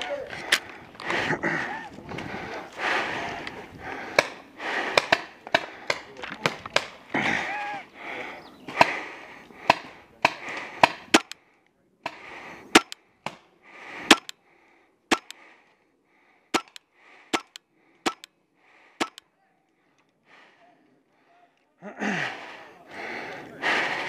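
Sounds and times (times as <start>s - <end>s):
paintball markers popping: 10.9s - 11.4s, 12.8s - 13.0s, 14.1s - 14.3s, 15.1s - 15.3s, 16.6s - 18.3s, 19.0s - 19.2s.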